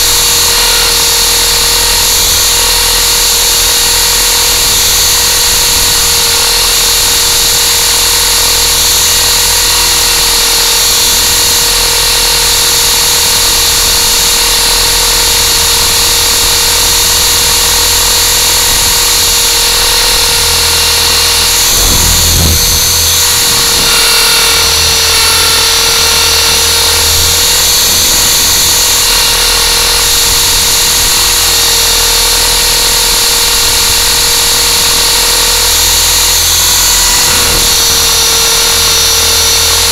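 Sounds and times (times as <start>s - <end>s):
electric rotors whining: 0.0s - 39.9s
brief low rumble: 21.4s - 25.6s.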